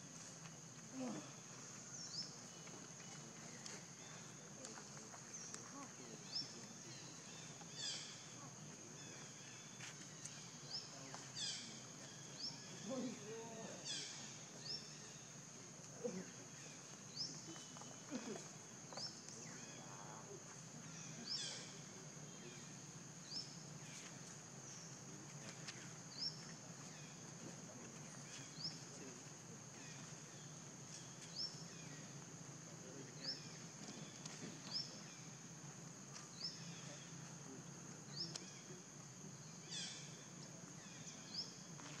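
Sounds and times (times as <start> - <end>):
insect drone: 0.0 - 42.0.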